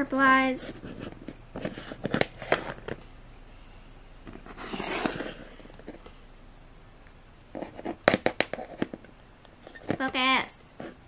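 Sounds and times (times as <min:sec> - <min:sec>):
soft handling rustle: 0:04.3 - 0:06.3.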